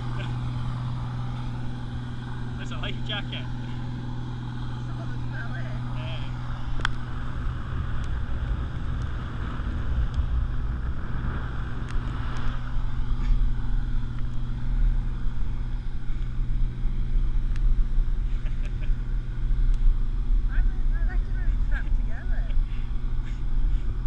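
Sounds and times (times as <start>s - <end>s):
wind buffeting microphone: 3.8s - 18.3s.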